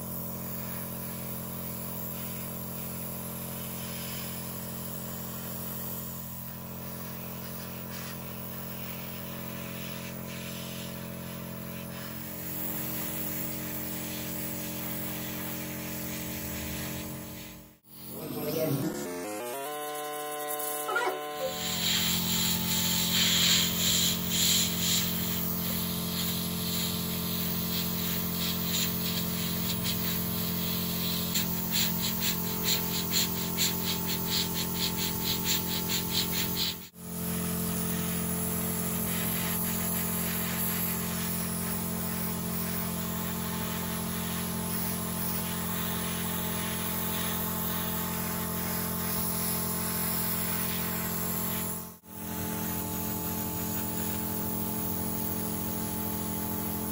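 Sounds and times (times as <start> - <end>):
airbrush spraying hiss: 0.1 - 18.6, 20.6 - 37.0, 37.8 - 56.9
compressor humming: 11.8 - 27.7.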